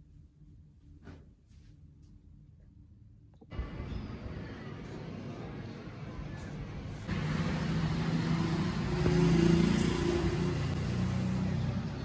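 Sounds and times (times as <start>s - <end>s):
road traffic noise: 3.5s - 12.0s
vehicle engine humming: 3.5s - 12.0s.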